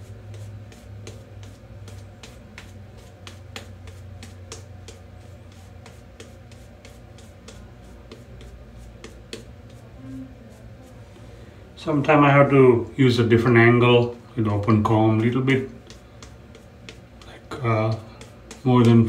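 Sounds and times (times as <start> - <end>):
shaving brush lathering: 0.0 - 9.9, 14.7 - 19.0.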